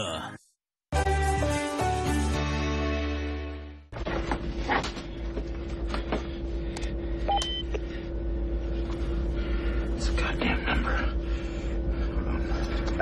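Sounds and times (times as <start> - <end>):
aircraft interior drone: 4.0 - 13.0.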